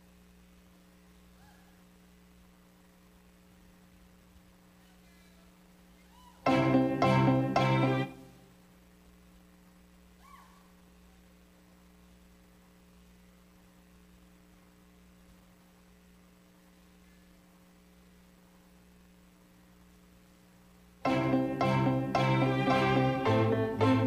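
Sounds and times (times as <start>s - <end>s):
faint electrical hum: 0.0s - 24.0s
recorded music with strings: 6.5s - 8.4s, 21.0s - 24.0s.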